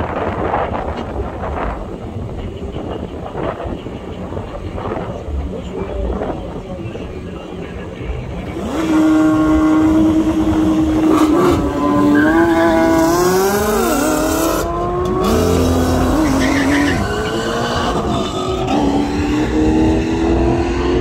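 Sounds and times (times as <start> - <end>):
car engine accelerating hard: 8.4 - 21.0.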